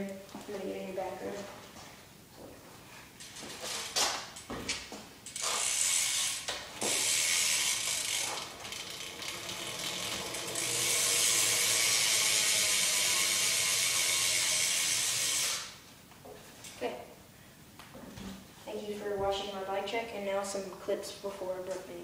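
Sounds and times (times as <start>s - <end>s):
bicycle hub ratcheting buzz: 5.2s - 15.8s.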